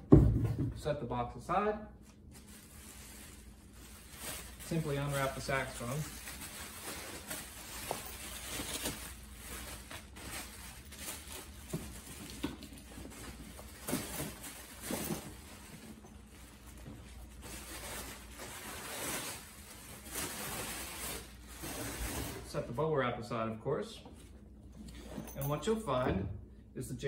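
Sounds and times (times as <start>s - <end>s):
bubble wrap rustling and crinkling: 2.0s - 22.6s.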